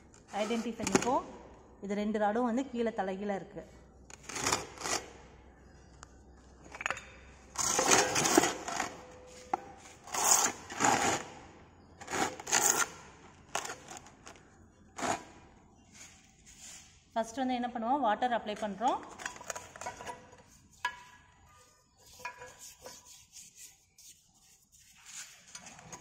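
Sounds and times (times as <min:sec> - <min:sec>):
wooden boxes scraping and knocking: 0:00.2 - 0:01.2.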